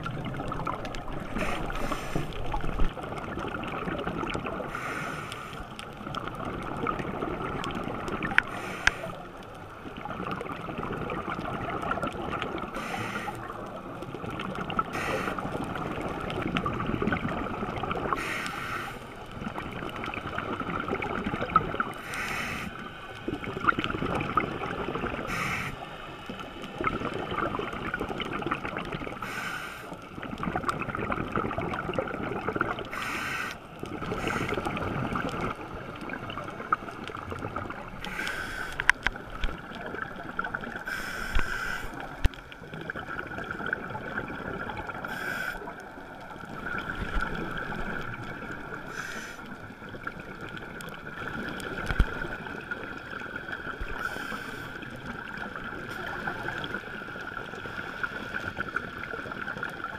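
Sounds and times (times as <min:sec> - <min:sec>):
muffled underwater hum: 0:00.0 - 0:31.3, 0:32.4 - 0:59.9
exhaled bubbles hissing: 0:00.0 - 0:59.9.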